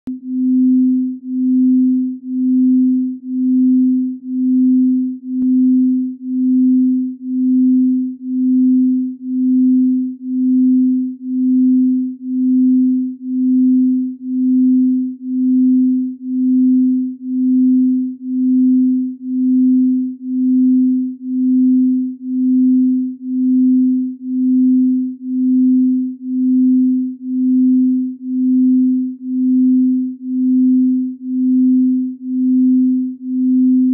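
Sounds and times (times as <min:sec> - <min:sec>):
pulsing low electronic tone: 0:00.1 - 0:33.9.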